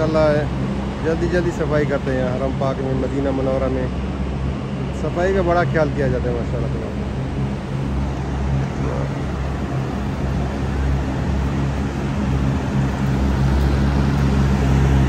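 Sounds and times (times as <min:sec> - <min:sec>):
constant hiss: 0:00.0 - 0:15.0.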